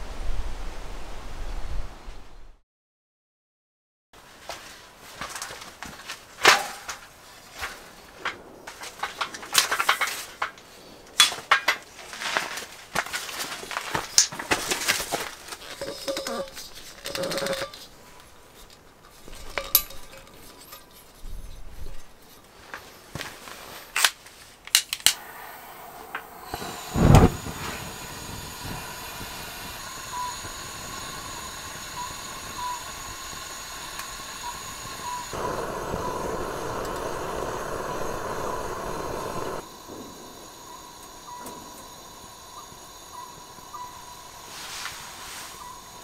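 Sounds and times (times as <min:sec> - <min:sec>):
igniter clicks: 0:24.7 - 0:45.0
burning gas hissing: 0:25.1 - 0:46.0
gas igniting puff: 0:25.1 - 0:46.0.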